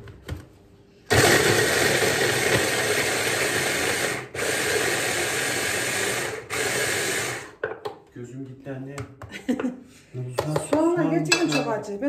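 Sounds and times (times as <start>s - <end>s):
hand blender motor whirring: 1.1s - 7.6s.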